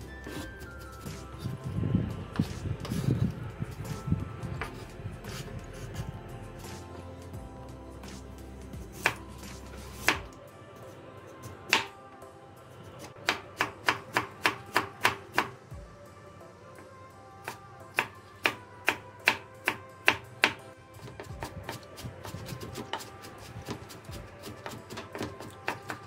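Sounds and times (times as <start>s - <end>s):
faint background music: 0.0s - 26.0s
knife chopping on wooden board: 9.0s - 9.2s, 13.3s - 15.5s, 18.0s - 26.0s.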